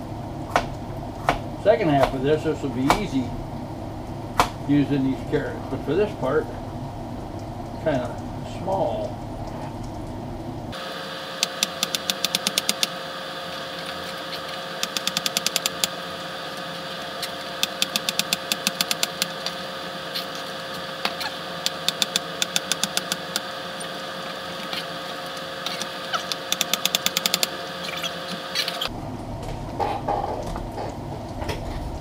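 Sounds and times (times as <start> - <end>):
steady tone: 10.7 - 28.4
knife chopping rapid clicks: 11.4 - 12.9, 14.8 - 15.9, 17.6 - 19.4, 21.0 - 23.5, 25.7 - 27.5.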